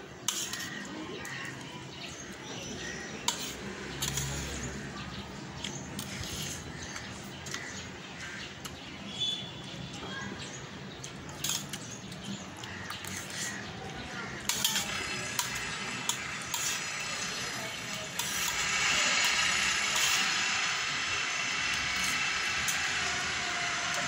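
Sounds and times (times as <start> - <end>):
spoon scraping metal plate: 0.3 - 0.8, 3.3 - 4.7, 6.0 - 6.7, 11.4 - 11.8, 12.9 - 13.7, 14.3 - 24.0.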